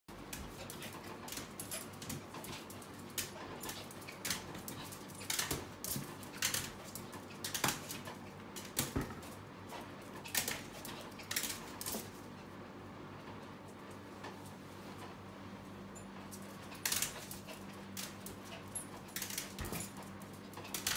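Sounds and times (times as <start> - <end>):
dog paws knocking on fridge: 8.7 - 9.4.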